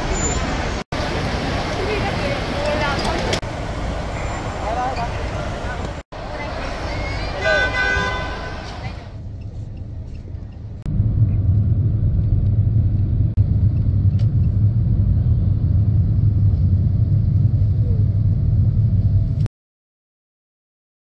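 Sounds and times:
car driving heard from inside: 0:08.6 - 0:19.5.

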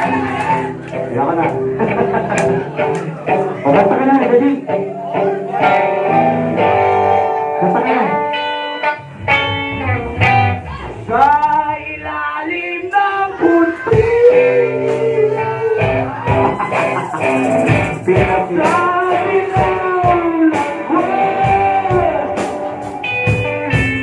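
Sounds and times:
drums: 0:00.0 - 0:24.0
electric guitars: 0:00.0 - 0:24.0
person singing: 0:10.6 - 0:23.6.

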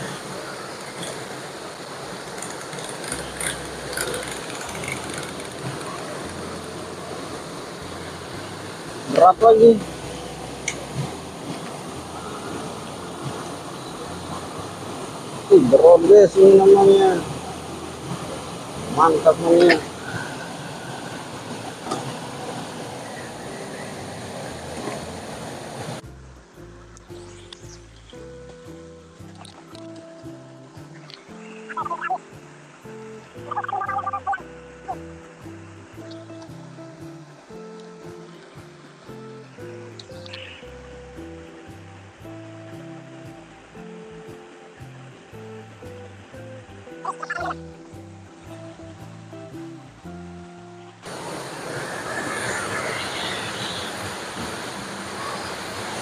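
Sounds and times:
background music: 0:00.0 - 0:56.0
stream running over rocks: 0:00.0 - 0:56.0.

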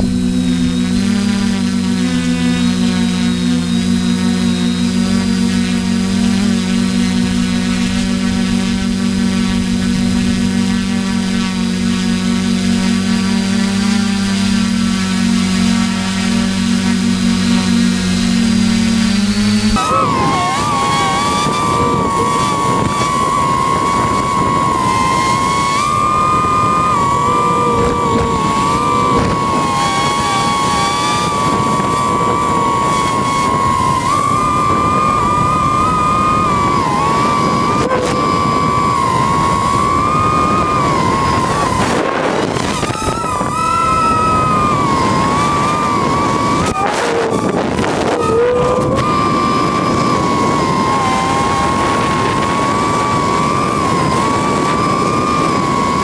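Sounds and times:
drone propellers whining: 0:00.0 - 0:56.0
wind hiss: 0:00.0 - 0:56.0.

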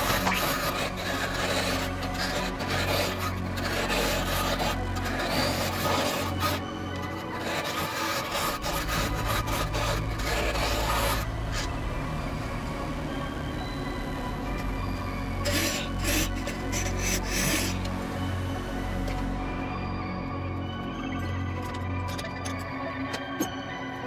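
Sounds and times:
tool scraping wood: 0:00.0 - 0:11.7, 0:15.4 - 0:17.9
lathe motor hum: 0:00.0 - 0:20.5.

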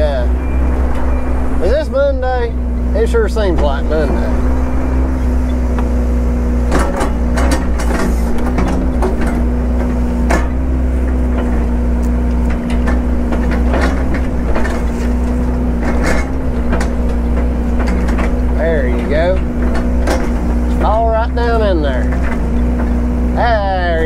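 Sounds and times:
heavy equipment engine running: 0:00.0 - 0:24.0
knocks and clunks: 0:00.0 - 0:24.0.

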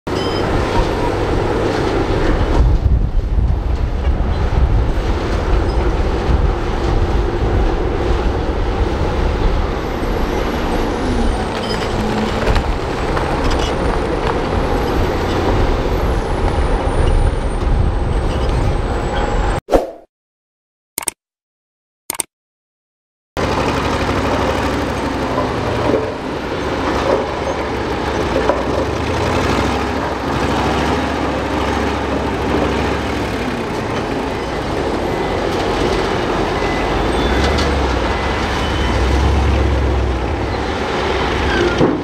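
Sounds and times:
heavy diesel engines running: 0:00.1 - 0:19.5, 0:23.4 - 0:42.0
rock and soil sliding: 0:10.9 - 0:15.5.

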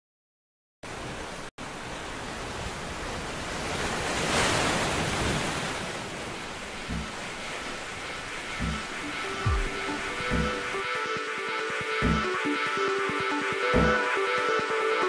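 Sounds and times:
rush of surf-like noise: 0:00.9 - 0:15.0.

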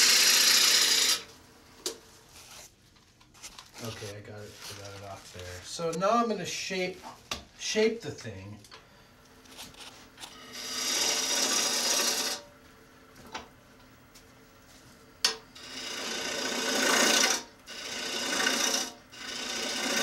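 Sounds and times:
gouge rasping on spinning wood: 0:00.0 - 0:01.2, 0:10.6 - 0:12.4, 0:15.6 - 0:20.0
lathe motor humming: 0:00.0 - 0:01.2, 0:10.4 - 0:12.4, 0:15.6 - 0:20.0.

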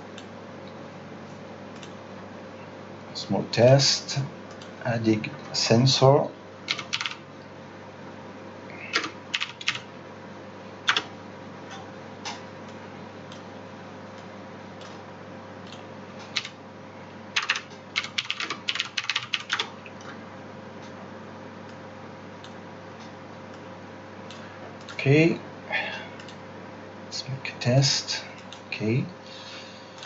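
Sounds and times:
faint steady hum: 0:00.0 - 0:30.0
computer keyboard typing: 0:06.7 - 0:07.2, 0:08.9 - 0:09.9, 0:10.9 - 0:11.1, 0:15.6 - 0:16.6, 0:17.4 - 0:19.7.

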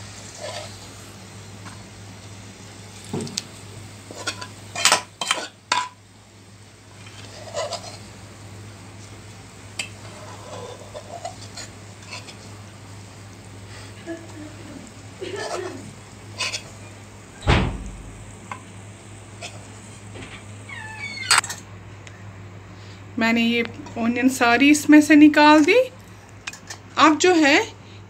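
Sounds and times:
metal spoon scraping metal pan: 0:09.8 - 0:12.4, 0:16.4 - 0:16.7
low steady hum: 0:12.6 - 0:28.0.

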